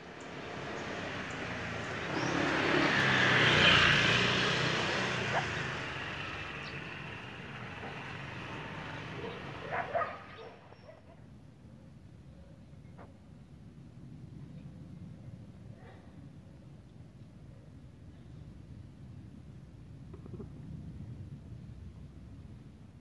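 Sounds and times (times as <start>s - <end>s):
vehicle passing by: 0.0s - 10.8s
dog barking: 5.2s - 5.7s, 9.1s - 11.3s.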